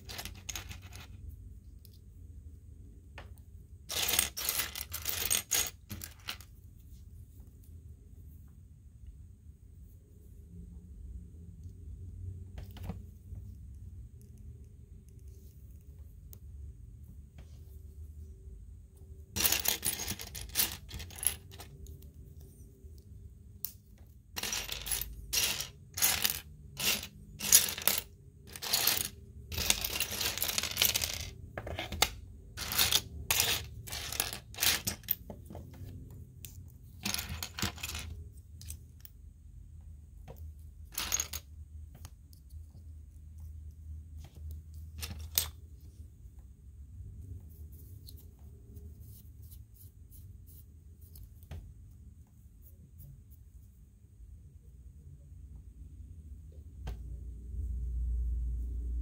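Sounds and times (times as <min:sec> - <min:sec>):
plastic pieces clattering: 0:00.0 - 0:01.1, 0:03.9 - 0:06.4, 0:24.4 - 0:35.2, 0:37.0 - 0:38.1.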